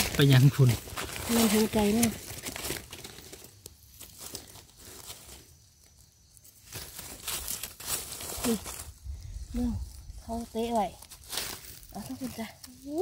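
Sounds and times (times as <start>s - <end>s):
dry leaves rustling and crinkling: 0.0s - 13.0s
knife scraping leaf litter: 6.6s - 8.8s.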